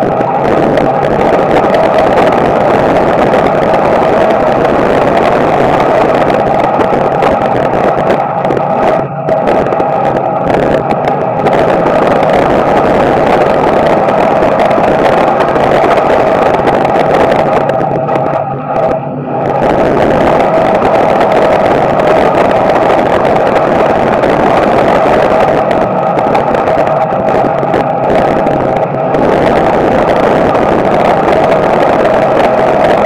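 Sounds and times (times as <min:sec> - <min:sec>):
race car engine at speed: 0:00.0 - 0:33.0.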